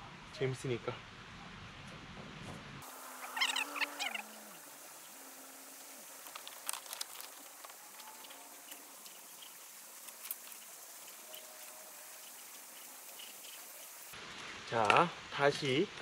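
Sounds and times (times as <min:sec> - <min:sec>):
pebbles shifting under footsteps: 0:06.1 - 0:14.0.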